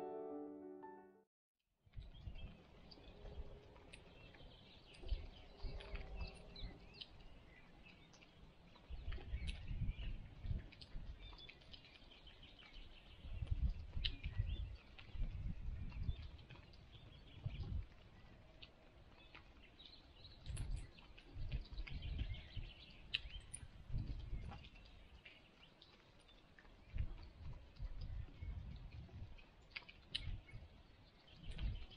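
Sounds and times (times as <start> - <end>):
wind rumbling on microphone: 1.9 - 31.9
small birds chirping: 2.0 - 31.9.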